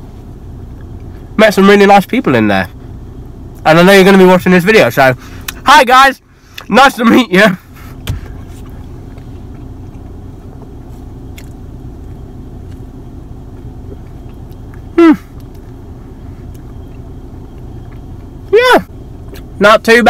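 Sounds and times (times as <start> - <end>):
low car hum: 0.0 - 20.0
person biting and chewing: 11.2 - 11.6.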